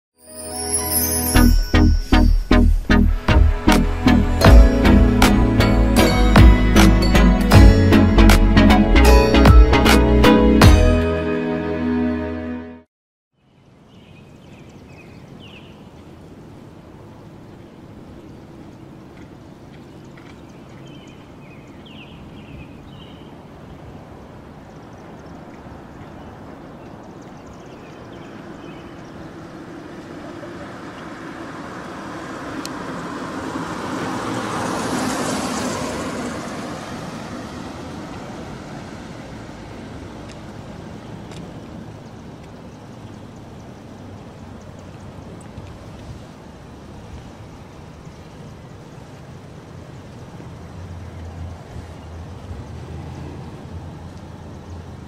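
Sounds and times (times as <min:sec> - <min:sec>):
low traffic rumble: 0:01.4 - 0:10.9, 0:13.6 - 0:55.0
car driving past: 0:28.3 - 0:40.3.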